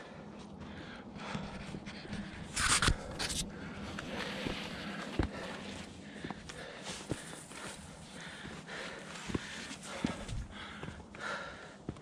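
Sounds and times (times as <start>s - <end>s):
footsteps on rocky trail: 0.4s - 12.0s
panting breath: 4.2s - 11.8s.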